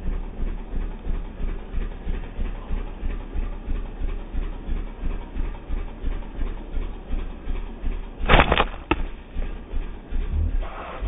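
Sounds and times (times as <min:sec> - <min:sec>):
steady low thudding: 0:07.8 - 0:11.0.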